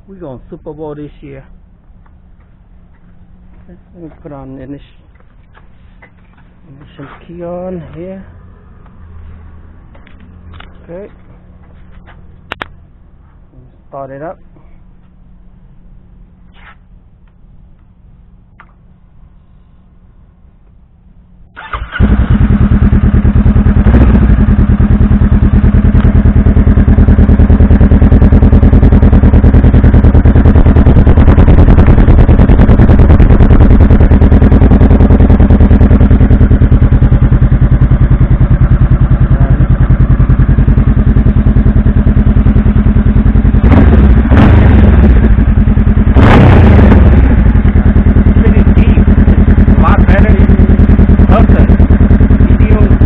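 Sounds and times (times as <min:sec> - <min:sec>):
motorcycle engine starting and idling: 0:01.9 - 0:12.8, 0:21.4 - 0:53.0
engine revving bursts: 0:21.5 - 0:37.1, 0:43.2 - 0:53.0.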